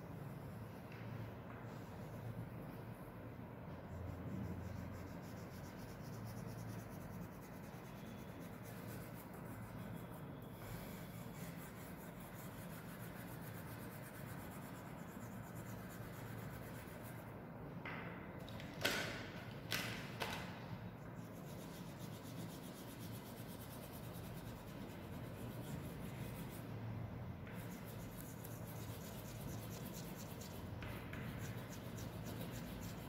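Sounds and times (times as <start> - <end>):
oil pastel scratching paper: 3.8 - 17.3, 21.0 - 33.0.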